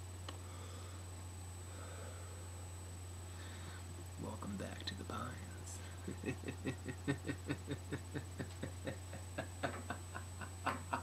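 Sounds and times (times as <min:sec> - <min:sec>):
steady low hum: 0:00.0 - 0:11.0
man laughing: 0:05.8 - 0:11.0.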